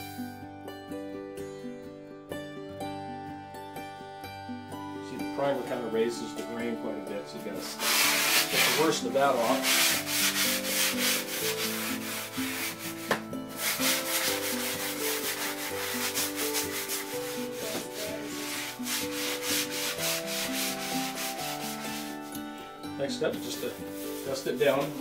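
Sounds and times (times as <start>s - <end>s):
sanding sponge rubbing drywall: 7.6s - 22.3s, 23.6s - 25.0s.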